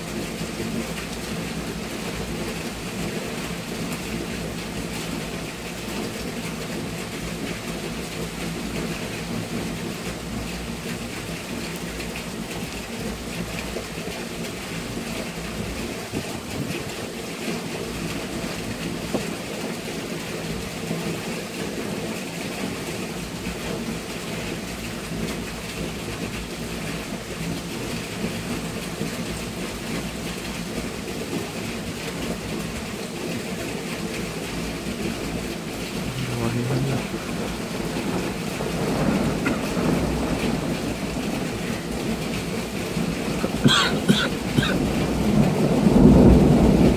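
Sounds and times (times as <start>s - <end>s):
steady rain: 0.0s - 46.9s
low thunder rumbling: 37.0s - 43.7s, 44.4s - 46.9s.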